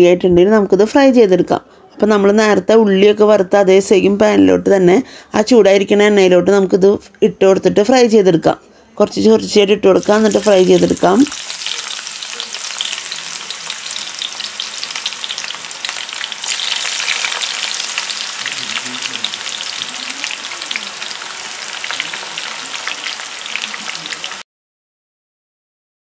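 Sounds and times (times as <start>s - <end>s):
eggplant sizzling in hot oil: 10.0s - 24.4s.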